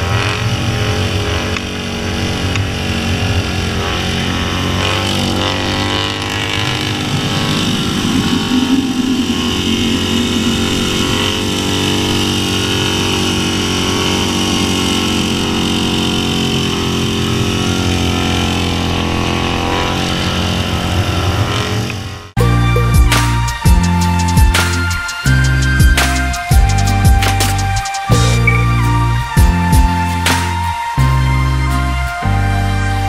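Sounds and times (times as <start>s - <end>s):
motorcycle engine running: 0.0s - 32.9s
wind buffeting microphone: 6.3s - 13.3s.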